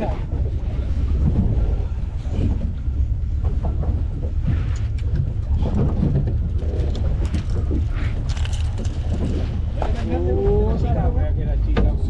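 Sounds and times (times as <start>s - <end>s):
boat motor running: 0.0s - 12.0s
wind buffeting microphone: 0.0s - 12.0s.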